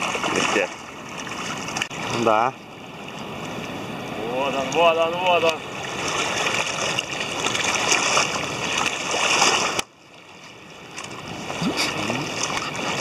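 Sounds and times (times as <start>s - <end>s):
water lapping at bank: 0.0s - 13.0s.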